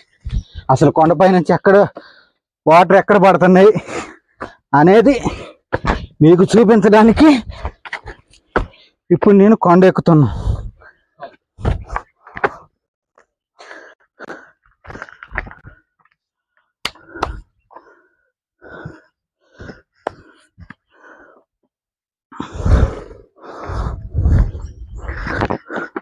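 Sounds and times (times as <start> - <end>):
man breathing hard: 1.9 - 2.5, 3.8 - 6.2, 7.2 - 9.1, 10.2 - 12.8, 13.5 - 16.0, 16.9 - 21.6, 22.3 - 26.0.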